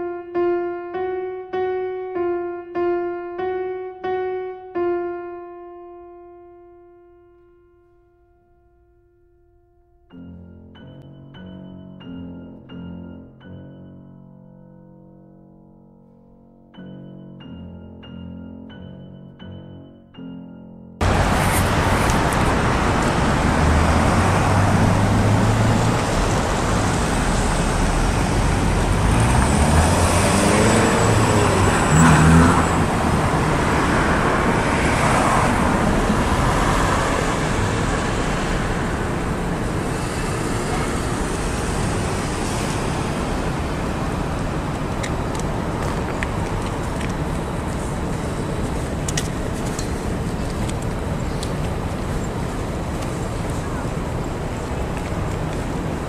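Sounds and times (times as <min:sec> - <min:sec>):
piano music: 0:00.0 - 0:51.9
roar of passing cars: 0:21.0 - 0:49.0
vehicle engine passing by: 0:21.0 - 0:49.0.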